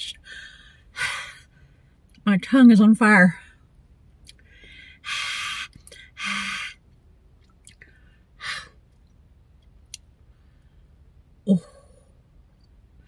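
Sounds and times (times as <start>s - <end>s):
woman breathing hard: 0.2s - 2.0s, 4.4s - 6.8s, 7.8s - 8.8s.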